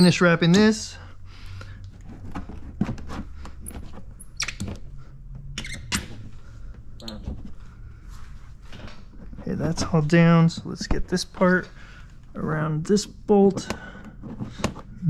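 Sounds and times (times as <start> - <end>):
film squeaking under rubbing: 3.0 - 4.7, 7.0 - 7.6.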